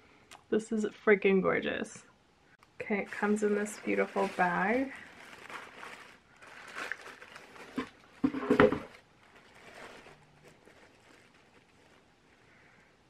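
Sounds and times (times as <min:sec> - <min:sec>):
shoe bag set on a table: 0:03.1 - 0:12.1
tissue paper rustling: 0:03.1 - 0:12.3.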